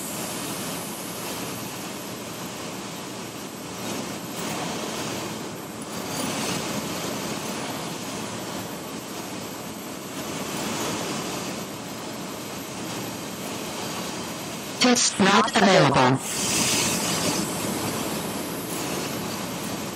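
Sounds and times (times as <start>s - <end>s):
airplane engine and propeller: 0.0s - 19.9s
airflow noise: 14.8s - 19.0s.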